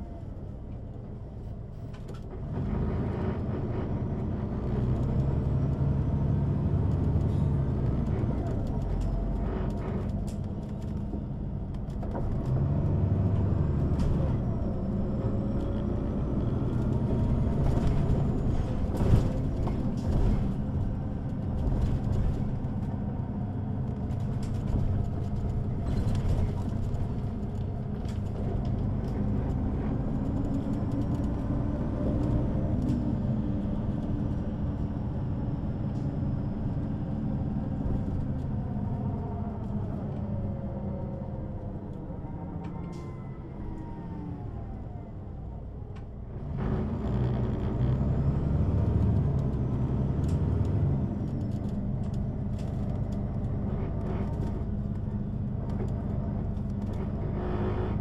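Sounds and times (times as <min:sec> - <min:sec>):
bus engine running: 0:00.0 - 0:58.0.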